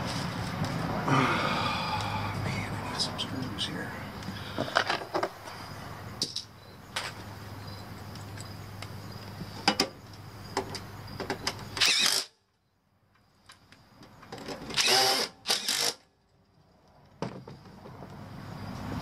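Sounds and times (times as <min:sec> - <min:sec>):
cordless drill driving screws: 0:11.8 - 0:12.3, 0:14.7 - 0:16.0.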